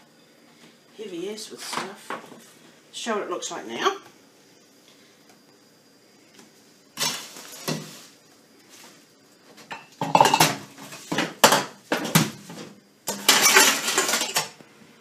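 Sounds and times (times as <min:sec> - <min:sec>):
objects clanking in metal sink: 0:09.7 - 0:14.6.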